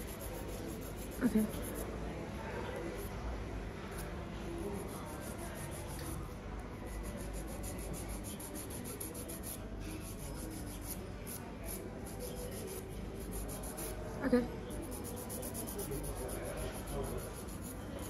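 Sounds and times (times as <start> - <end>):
nail file filing fingernails: 0.0 - 1.8, 6.9 - 14.0, 14.7 - 18.0.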